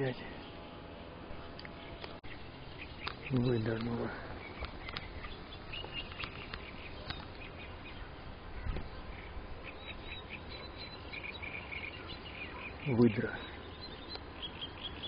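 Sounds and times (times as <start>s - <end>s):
low background noise: 0.0s - 15.0s
bird chirps: 1.4s - 15.0s
small clicks: 3.0s - 5.1s, 5.8s - 7.4s.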